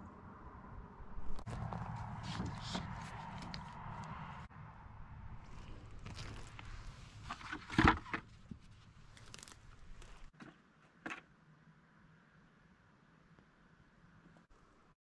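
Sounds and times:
rustling in dry brush: 1.4s - 3.8s, 5.4s - 7.6s.

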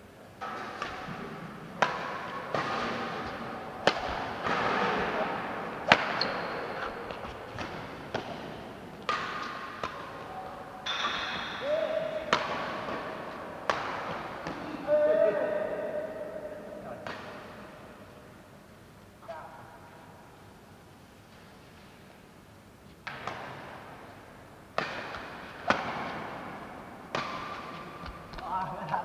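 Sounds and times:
rackets striking shuttlecock: 0.4s - 14.9s, 16.9s - 18.0s, 23.0s - 24.0s, 24.7s - 28.4s.

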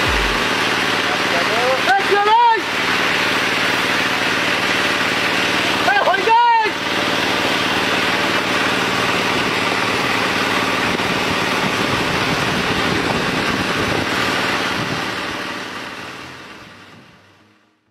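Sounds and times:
motor humming: 0.0s - 0.8s.

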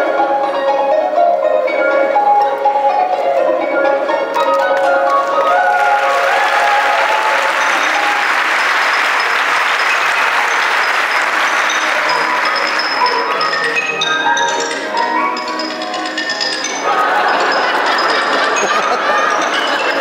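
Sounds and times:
mallet percussion music: 0.0s - 20.0s
audience applauding: 4.8s - 13.8s, 16.8s - 20.0s.

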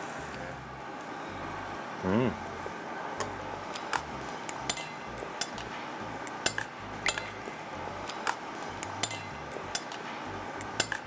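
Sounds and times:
metal chopsticks clinking on bowl: 9.0s - 10.0s.

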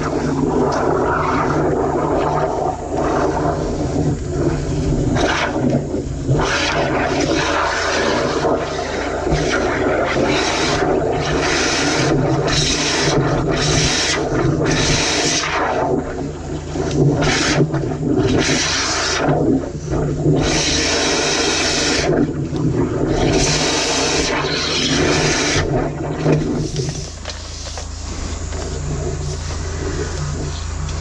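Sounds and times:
water rushing and gushing: 0.0s - 31.0s
engine humming: 19.5s - 31.0s.

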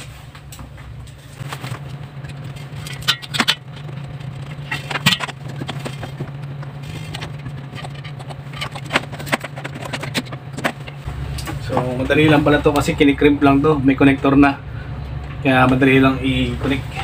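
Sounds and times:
steady low hum: 0.0s - 17.0s
metal rods scraping and clicking: 2.2s - 11.6s.

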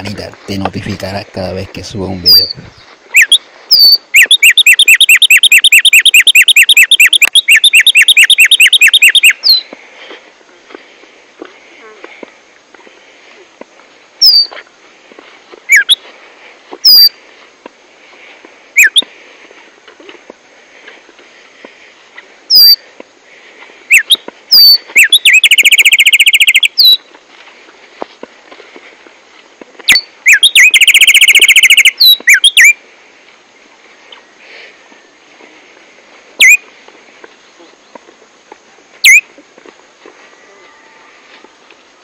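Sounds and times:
bird whistling and trilling: 3.2s - 9.7s, 14.2s - 14.5s, 15.7s - 16.0s, 16.8s - 17.1s, 22.5s - 22.8s, 23.9s - 27.0s, 29.9s - 32.7s, 39.0s - 39.2s.

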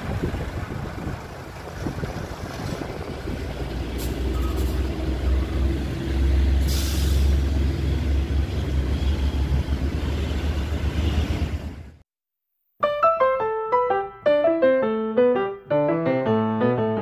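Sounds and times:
diesel truck engine rumbling: 0.0s - 12.0s
air hiss: 6.5s - 7.5s.

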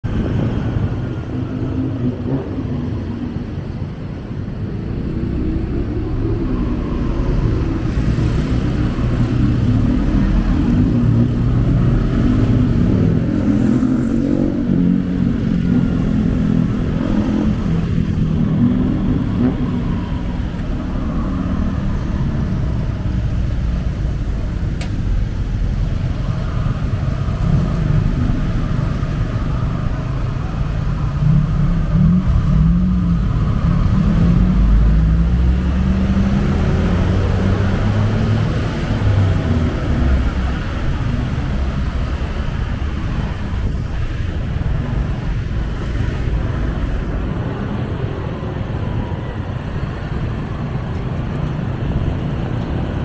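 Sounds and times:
city traffic: 0.0s - 53.0s.

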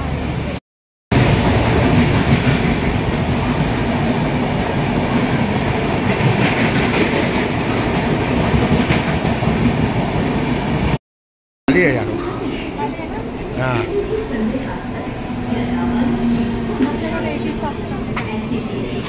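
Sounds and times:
train wheels on track: 0.0s - 11.0s, 11.8s - 19.0s.

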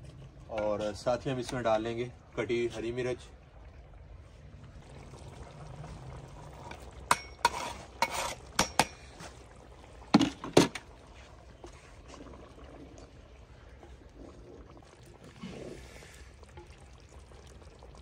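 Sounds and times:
metal spoon clinking on pan: 7.1s - 9.1s.

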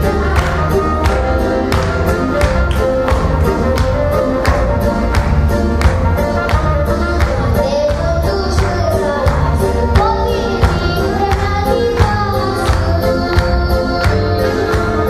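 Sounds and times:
accompanying music with steady beat: 0.0s - 15.0s
boy singing into a microphone: 7.4s - 15.0s.

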